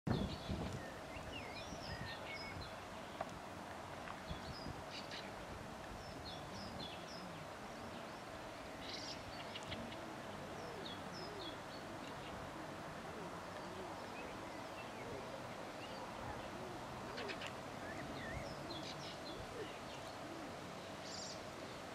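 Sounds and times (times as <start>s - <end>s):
small birds chirping: 0.1s - 12.6s, 13.2s - 21.9s
pigeons cooing: 9.6s - 20.8s.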